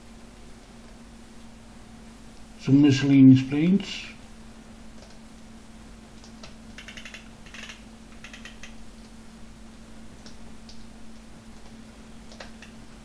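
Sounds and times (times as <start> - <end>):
low electrical hum: 0.0 - 13.0
computer controls clicking: 6.2 - 8.8.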